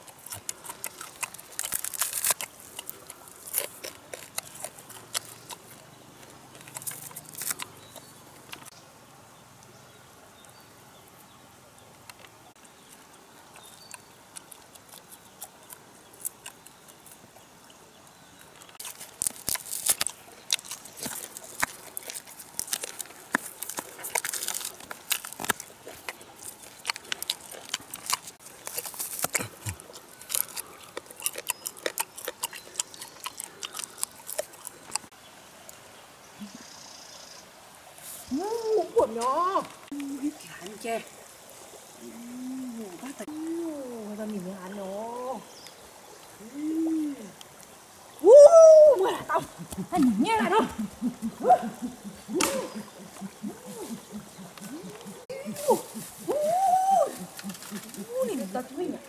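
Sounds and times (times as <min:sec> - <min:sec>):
crunching and crackling meat: 0:00.0 - 0:08.7, 0:18.4 - 0:35.1.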